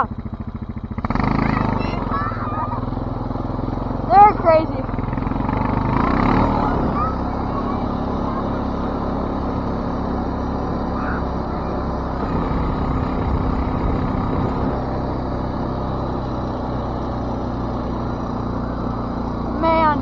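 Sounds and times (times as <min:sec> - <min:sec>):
atv engine running: 0:00.0 - 0:20.0
rushing noise over snow: 0:05.3 - 0:20.0.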